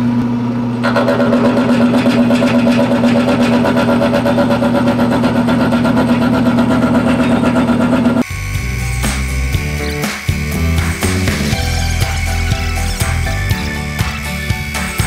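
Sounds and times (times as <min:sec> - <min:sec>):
milling machine running: 0:00.0 - 0:15.0
music: 0:08.2 - 0:15.0.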